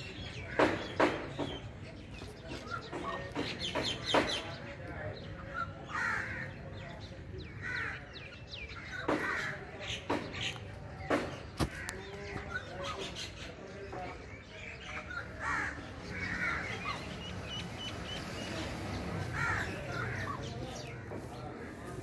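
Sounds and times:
bird calling: 7.5 - 21.9.

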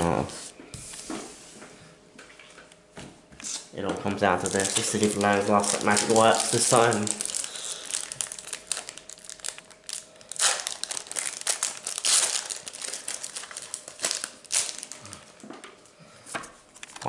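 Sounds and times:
foil wrapper tearing and crinkling: 4.4 - 15.3.

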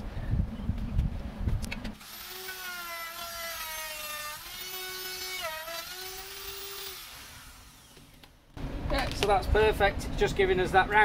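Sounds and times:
electric router motor whine: 2.0 - 8.2
router bit cutting wood: 2.0 - 8.2.

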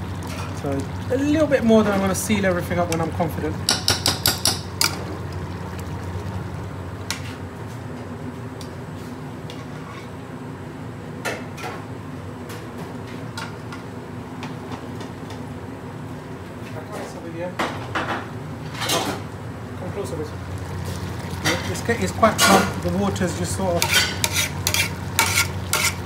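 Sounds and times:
pot simmering: 0.0 - 7.6, 20.3 - 26.0
metal utensils knocking: 3.7 - 5.0.

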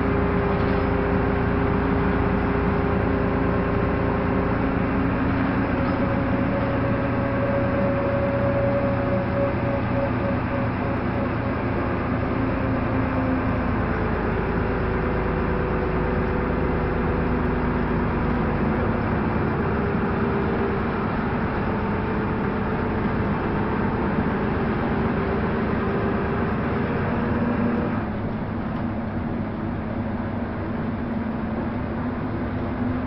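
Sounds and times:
bus engine hum: 0.0 - 33.0.

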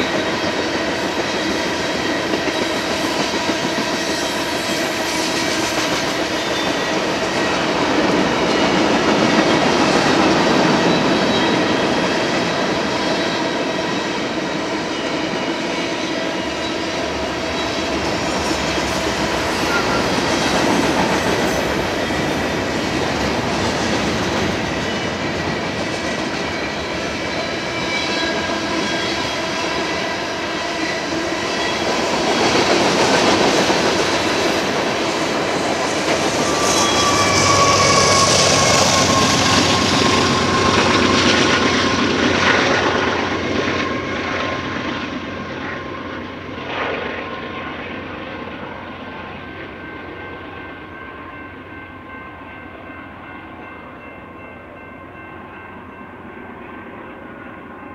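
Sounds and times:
freight train rumbling past: 0.0 - 57.9.

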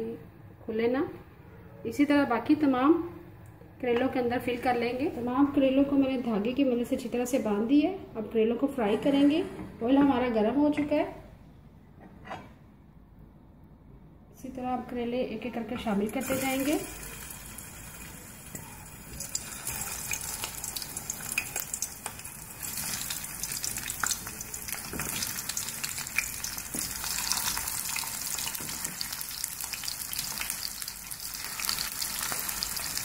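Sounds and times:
food sizzling in hot oil: 16.2 - 33.0.

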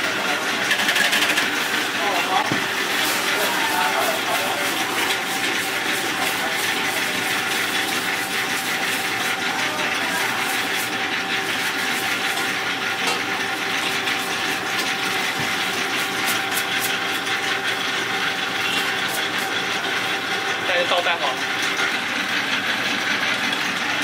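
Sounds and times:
whisk beating in metal bowl: 0.0 - 23.8
mechanical hum and hiss: 0.0 - 24.0.

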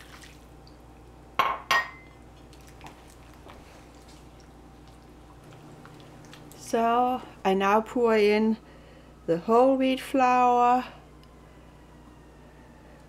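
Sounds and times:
spatula stirring mixture: 2.4 - 6.6.

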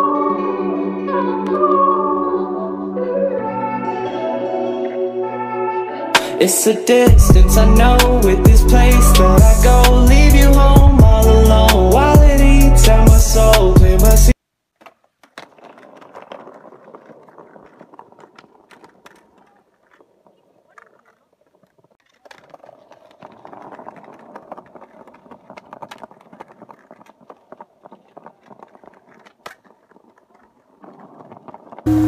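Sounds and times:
skateboard wheels rolling on stone: 6.2 - 32.0.

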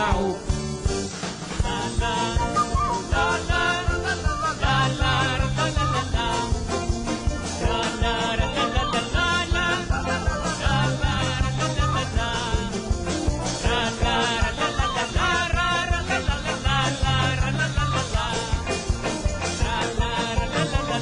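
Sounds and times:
bass guitar: 0.0 - 21.0
steady drum beat: 0.0 - 21.0
ney flute: 2.1 - 6.4.

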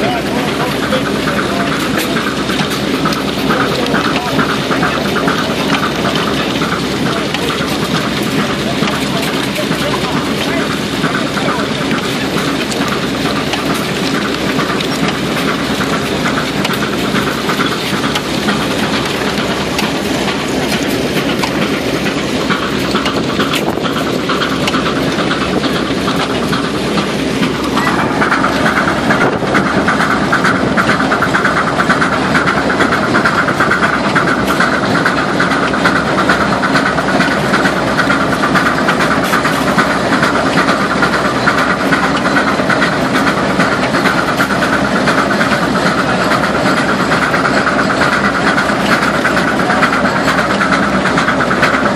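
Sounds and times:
plow frame rattling: 0.0 - 51.9
steam engine rhythmic clatter: 0.0 - 51.9
high-pitched steady tone: 27.8 - 29.0.

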